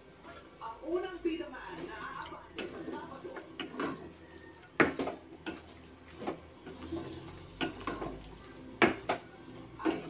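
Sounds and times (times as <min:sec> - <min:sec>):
wooden spatula knocking on pot: 0:01.7 - 0:06.4, 0:08.8 - 0:10.0.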